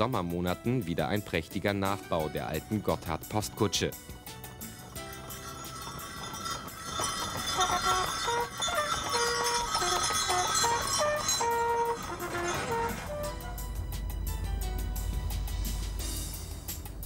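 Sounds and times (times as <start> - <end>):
horse hooves clip-clopping on road: 4.2 - 13.6
post horn playing a tune: 7.5 - 13.8.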